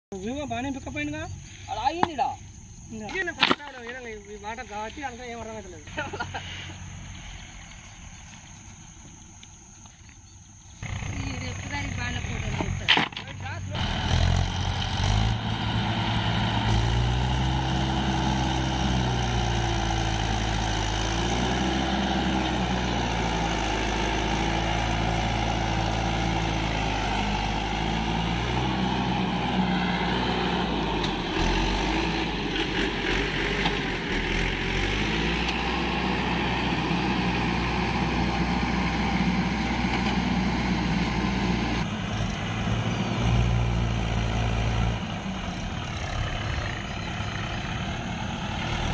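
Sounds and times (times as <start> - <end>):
tractor diesel engine under load: 10.7 - 48.9.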